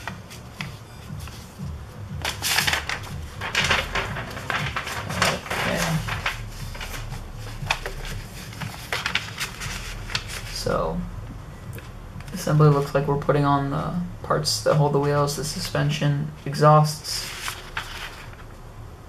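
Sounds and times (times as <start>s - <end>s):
paper rustling and crinkling: 0.0s - 1.6s, 2.2s - 10.7s, 17.0s - 18.6s.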